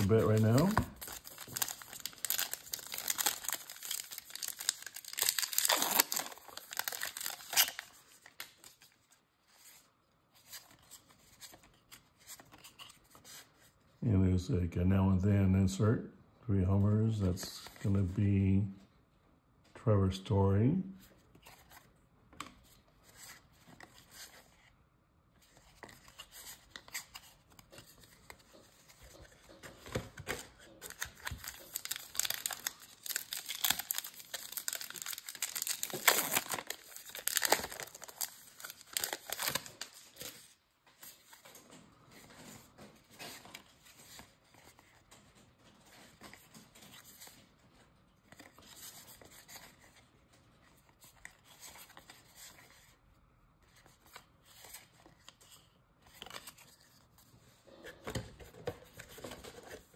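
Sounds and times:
wrapper tearing and crinkling: 0:00.0 - 0:08.7, 0:30.8 - 0:40.4
cards rustling: 0:00.0 - 0:13.8, 0:21.1 - 0:24.7, 0:25.4 - 0:53.0, 0:53.6 - 0:59.9.

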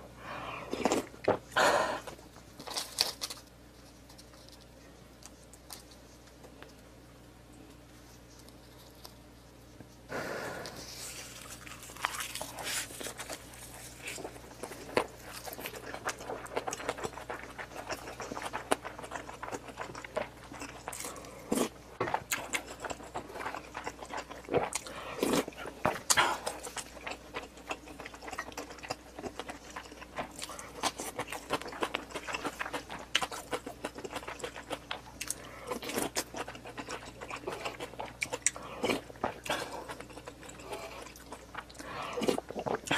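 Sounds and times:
person chewing with wet smacks: 0:11.3 - 0:42.9.

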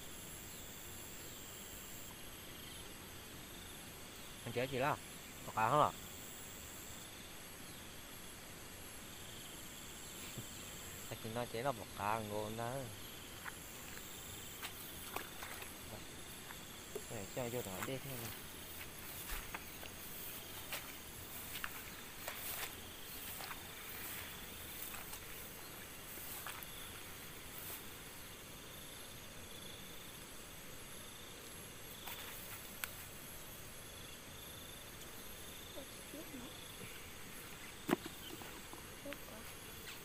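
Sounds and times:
insects chirring: 0:00.0 - 0:40.0
rustling of rice stalks: 0:17.4 - 0:28.0.

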